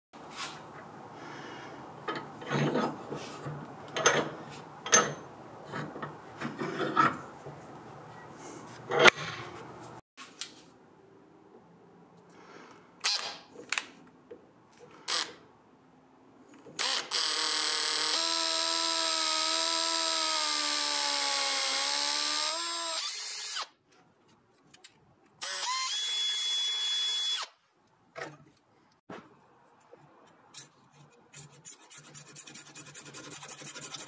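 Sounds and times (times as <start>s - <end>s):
power drill boring into wood: 16.8s - 23.7s, 25.4s - 27.5s.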